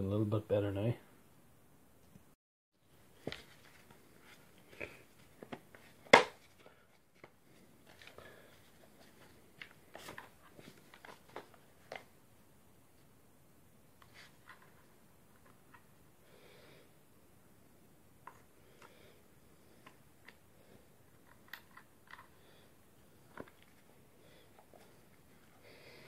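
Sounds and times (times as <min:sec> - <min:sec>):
soft rustle: 0:02.9 - 0:12.2.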